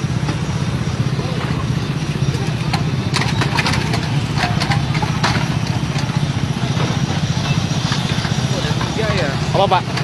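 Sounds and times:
traffic: 0.0s - 10.0s
vehicle engine rumbling: 0.0s - 10.0s.

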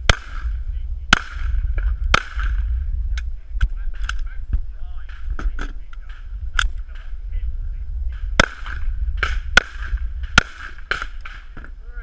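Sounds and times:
pistol shots ringing: 8.4s - 11.5s.

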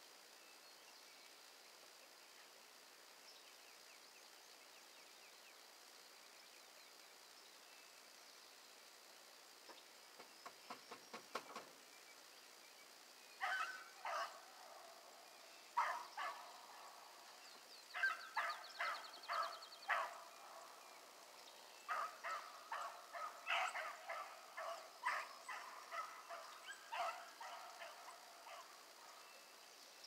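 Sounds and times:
hounds barking: 13.4s - 15.0s, 15.7s - 17.0s, 17.9s - 20.8s, 21.8s - 29.1s.

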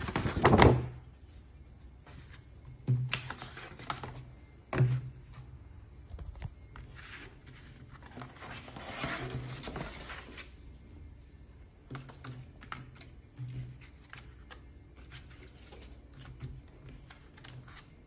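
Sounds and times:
paper rustling and sliding: 6.2s - 10.7s.

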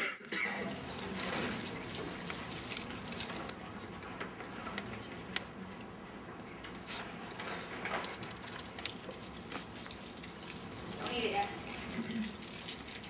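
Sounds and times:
low room noise: 0.0s - 13.0s
people chewing: 0.0s - 13.0s
snack wrapper rustling: 0.6s - 3.6s, 7.3s - 13.0s.

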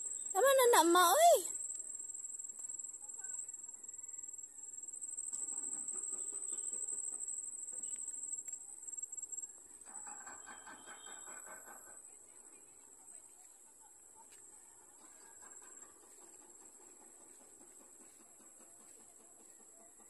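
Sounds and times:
insects trilling: 0.0s - 13.2s.

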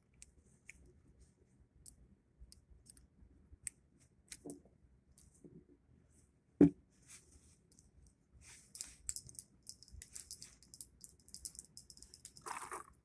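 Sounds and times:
light metallic clicking and rattling: 8.8s - 12.5s.

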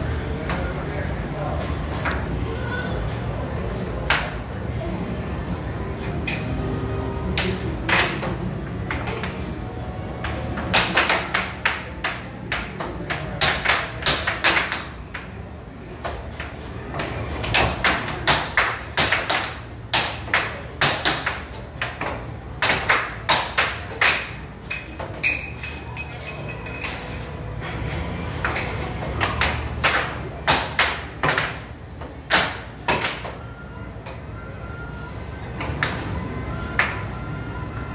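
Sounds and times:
low background hum: 0.0s - 37.9s
air hockey puck clacking: 7.3s - 9.4s, 10.2s - 15.4s, 16.0s - 25.9s, 28.4s - 33.4s.

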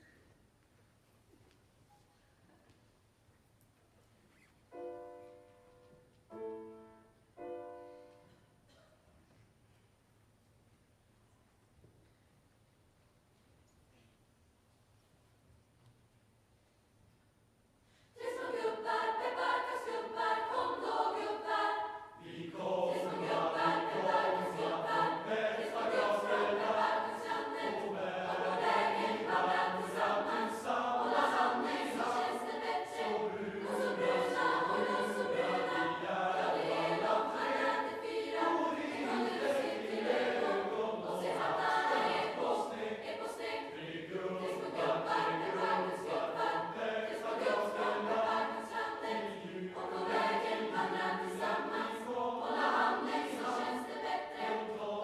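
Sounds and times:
large choir singing: 18.1s - 55.0s.

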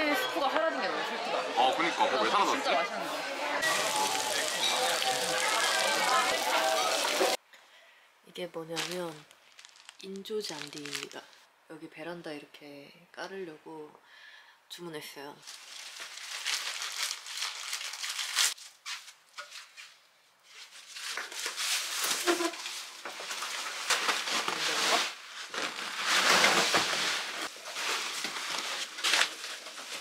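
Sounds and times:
mat rustling and scraping on tile: 15.4s - 30.0s.

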